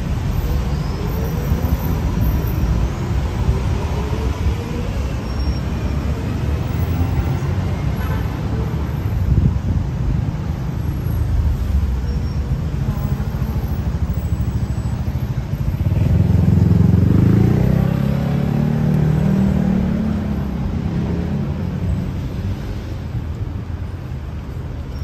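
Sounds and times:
road traffic rumble: 0:00.0 - 0:25.0
vehicle engine passing: 0:15.8 - 0:21.6.

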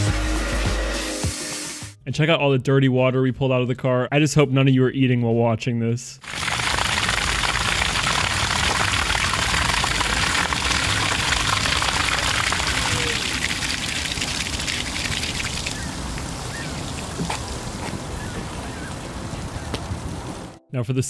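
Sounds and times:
water gushing onto asphalt: 0:06.2 - 0:20.5.

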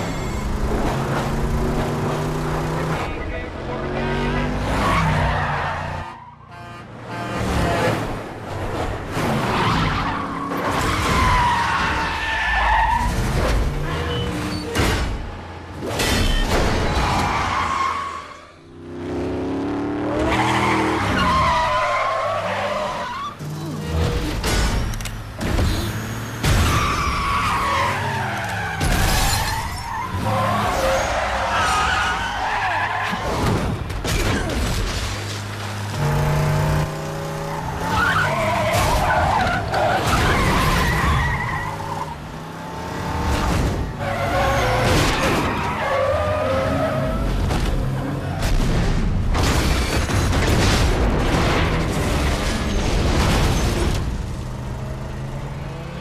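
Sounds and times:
car engines racing: 0:00.0 - 0:56.0
tyres screeching: 0:20.2 - 0:33.5, 0:35.8 - 0:48.4
crashes and impacts: 0:47.3 - 0:54.5.

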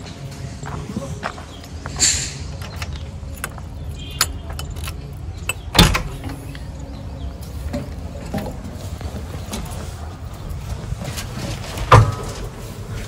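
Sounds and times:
metallic clicks and rattles: 0:02.6 - 0:06.6.

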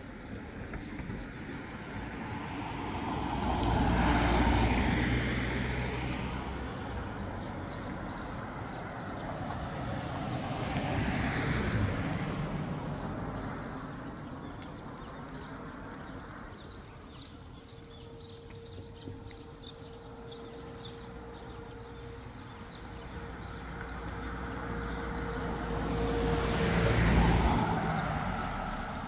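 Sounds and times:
vehicle passing with engine rumble: 0:00.0 - 0:16.5, 0:17.3 - 0:29.0
lighter vehicle passing: 0:17.3 - 0:29.0.

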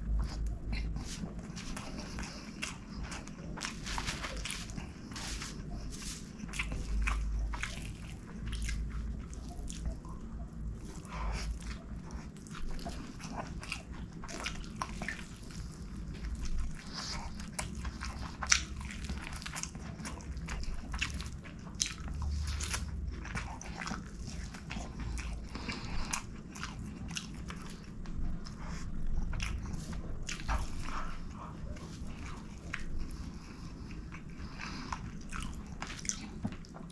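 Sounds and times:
wet chewing and lip smacking: 0:00.0 - 0:36.9.

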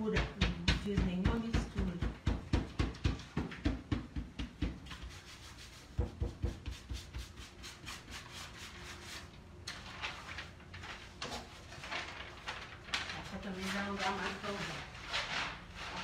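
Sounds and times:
hand rubbing paper: 0:04.9 - 0:16.0
paper rustling: 0:09.2 - 0:16.0.

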